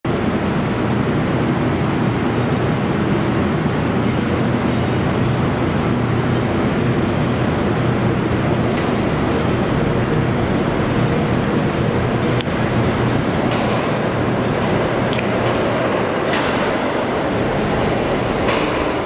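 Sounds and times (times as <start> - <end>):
rail noise: 0.1 - 19.0
subway train rumbling: 0.1 - 19.0.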